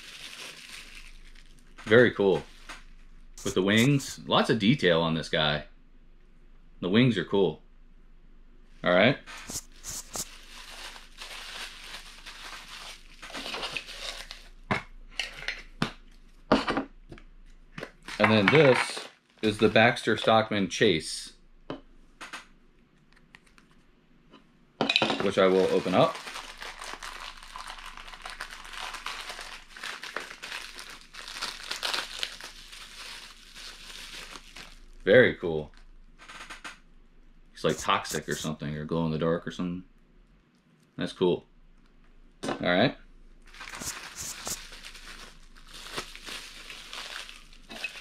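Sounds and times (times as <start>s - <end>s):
plastic packaging crinkling: 0.0s - 2.7s, 9.3s - 14.6s, 25.2s - 35.0s, 43.4s - 48.0s.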